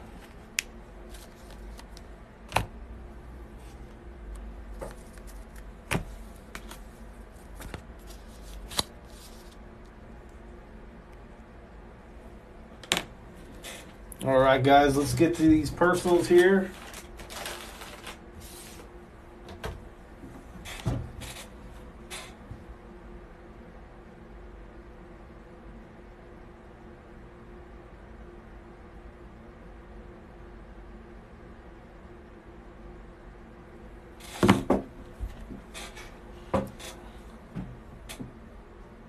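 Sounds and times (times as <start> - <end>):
faint steady hum: 0.0 - 39.0
rustles and knocks on a table: 34.3 - 38.3.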